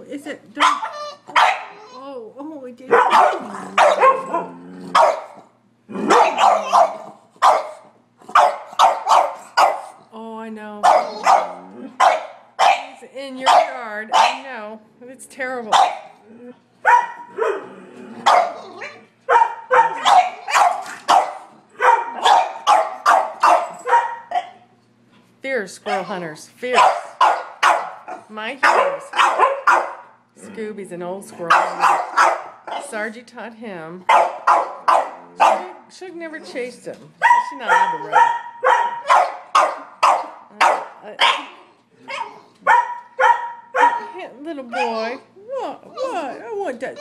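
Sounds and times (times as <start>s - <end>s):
dogs barking sharply: 0.6s - 1.8s, 2.9s - 10.0s, 10.8s - 14.5s, 15.7s - 16.2s, 16.8s - 17.6s, 18.2s - 24.6s, 25.9s - 30.2s, 31.5s - 32.9s, 34.1s - 35.8s, 37.2s - 45.0s.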